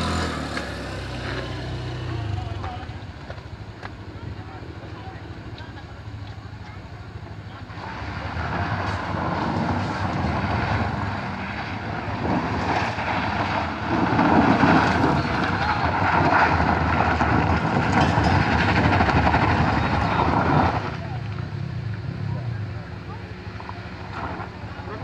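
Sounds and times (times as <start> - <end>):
engine revving hard: 0.0 - 2.6
tyres spinning on gravel: 0.0 - 22.0.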